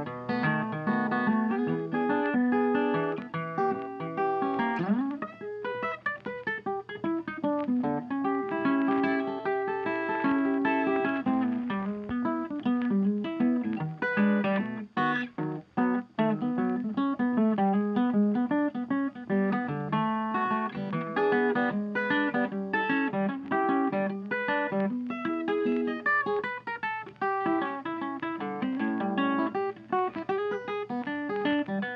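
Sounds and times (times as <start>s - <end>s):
acoustic guitar picking and strumming: 0.0s - 31.9s.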